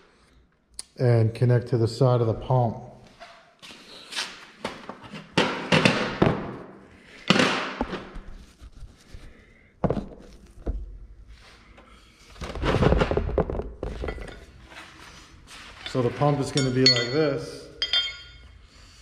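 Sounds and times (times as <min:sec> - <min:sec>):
metal parts clattering: 0:15.8 - 0:18.4.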